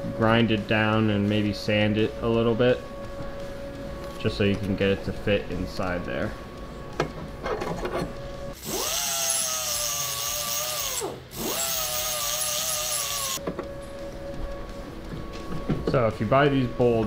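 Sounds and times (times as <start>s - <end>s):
disc sander whining: 0.0s - 17.0s
high grinding hiss: 8.6s - 13.4s.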